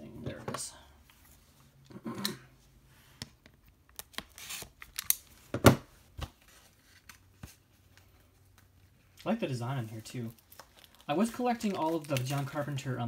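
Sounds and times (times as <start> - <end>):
packaging clicks and rustles: 10.0 - 12.9.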